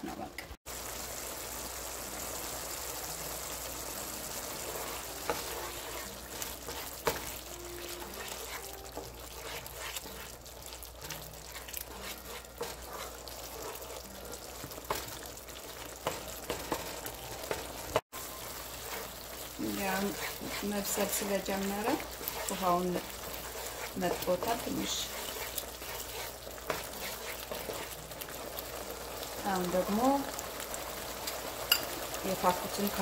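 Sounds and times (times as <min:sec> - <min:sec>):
sauce sizzling in a frying pan: 0:00.6 - 0:33.0
wooden spatula scraping a pan: 0:04.2 - 0:30.4.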